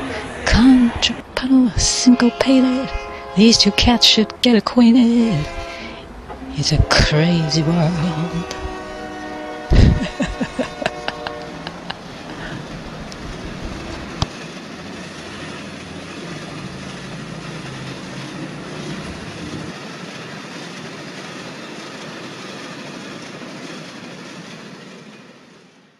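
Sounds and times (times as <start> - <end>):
steady rumbling: 0.0 - 19.8.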